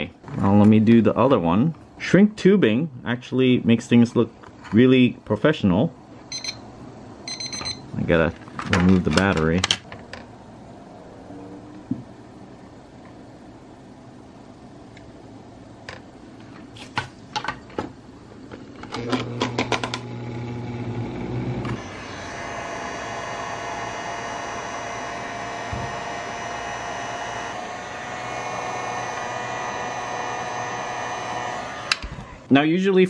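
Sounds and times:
heat gun blowing with whine: 19.0s - 32.5s.

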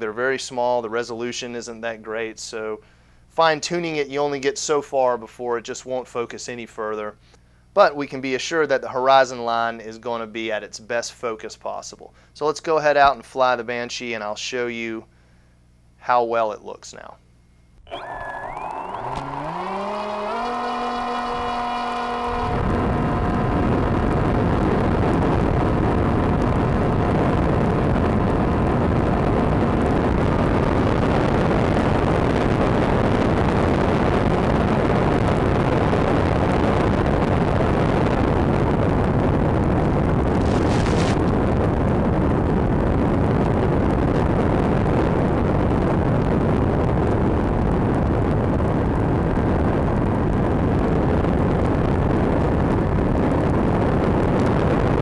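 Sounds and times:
electric motor whine: 17.8s - 27.7s
propeller and wind rush: 19.1s - 55.0s.

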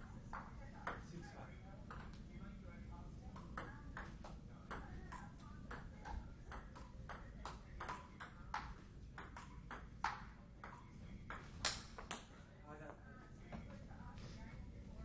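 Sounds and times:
table tennis ball ticking: 3.3s - 12.2s.

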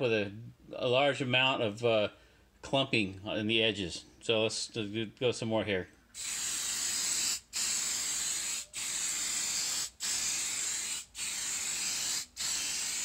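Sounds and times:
aerosol spray hissing: 6.2s - 13.0s.

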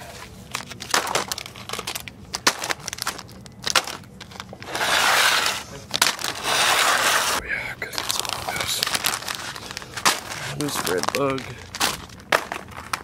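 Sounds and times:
plastic packs crinkling: 0.0s - 13.0s.

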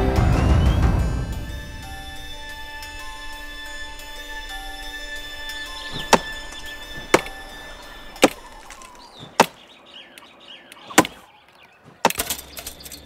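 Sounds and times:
birds chirping faintly: 0.0s - 13.0s.

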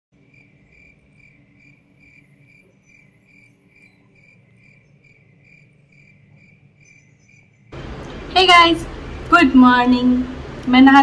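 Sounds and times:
cricket chirping: 0.2s - 7.8s
low background hum: 0.2s - 11.0s.

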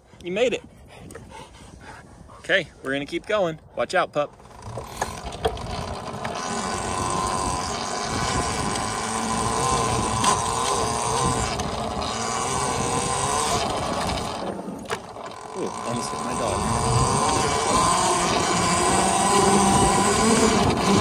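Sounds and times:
tyre and wind noise: 0.0s - 21.0s
electric motor whine: 4.4s - 21.0s.

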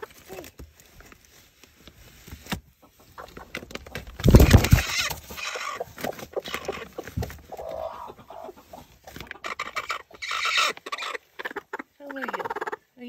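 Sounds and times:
scuffling and rustling: 0.0s - 9.4s
hen clucking: 2.8s - 12.9s.

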